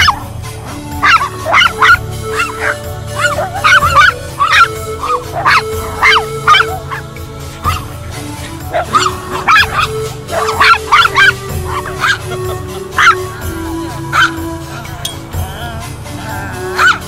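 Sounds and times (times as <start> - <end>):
small dogs yapping: 0.0 - 0.3, 0.9 - 13.5, 14.1 - 14.5, 16.7 - 17.0
background music with held notes: 0.0 - 17.0.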